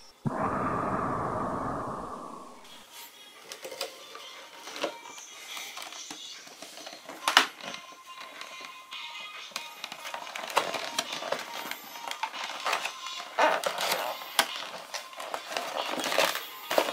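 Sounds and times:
loud hissing breath: 0:00.0 - 0:02.9.

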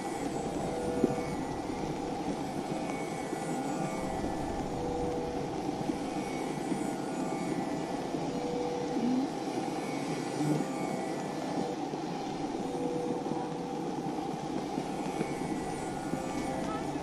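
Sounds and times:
faint humming tones: 0:00.0 - 0:17.0.

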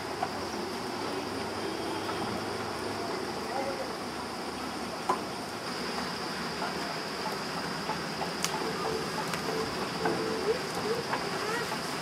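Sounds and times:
outdoor hiss: 0:00.0 - 0:12.0.

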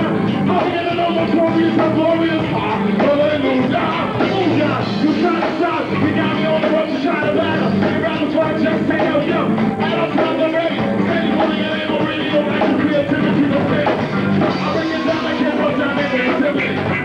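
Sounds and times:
electric guitar: 0:00.0 - 0:17.0
person singing into microphone: 0:00.0 - 0:17.0
rock band playing: 0:00.0 - 0:17.0.

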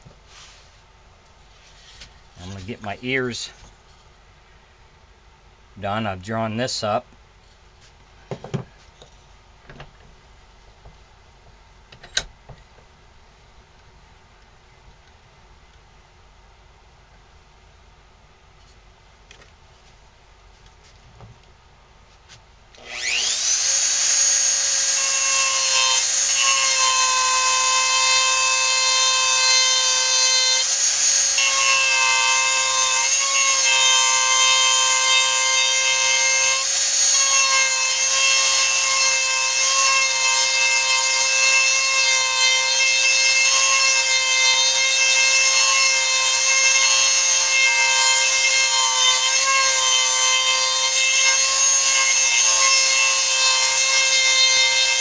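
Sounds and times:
rotary tool grinding wood: 0:22.8 - 0:55.0.

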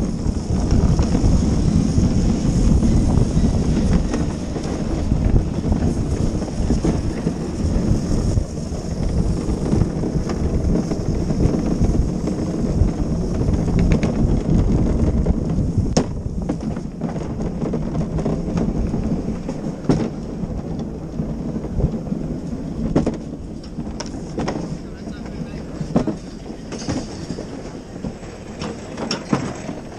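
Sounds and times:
cart wheels rumbling on pavement: 0:00.0 - 0:29.9.

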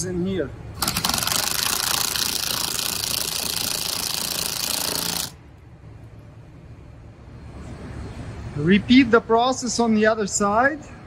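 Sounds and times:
impact driver rattling: 0:00.8 - 0:05.4.

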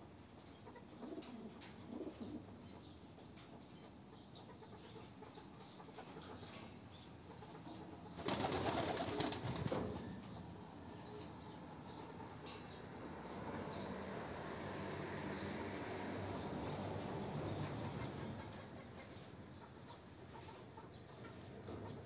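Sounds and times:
pigeons cooing: 0:00.8 - 0:02.7
wings flapping: 0:08.2 - 0:09.9.

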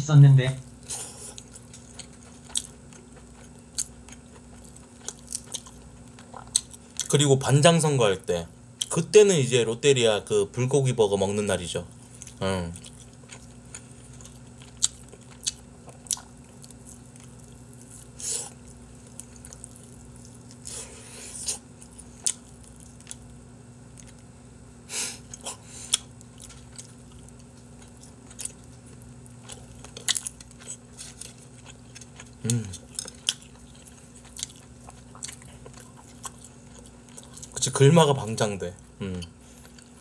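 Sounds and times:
steady low hum: 0:00.0 - 0:40.0
person chewing wet smacks: 0:01.3 - 0:07.1, 0:12.2 - 0:20.7, 0:25.2 - 0:37.7
person humming: 0:32.4 - 0:32.8, 0:39.0 - 0:39.3.

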